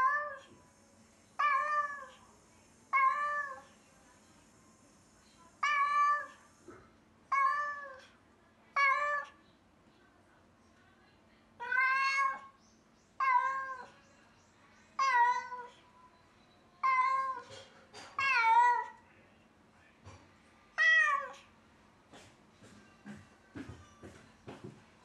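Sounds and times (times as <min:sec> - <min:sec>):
cat meowing loudly: 0:07.3 - 0:08.0, 0:11.6 - 0:12.5, 0:18.2 - 0:19.0.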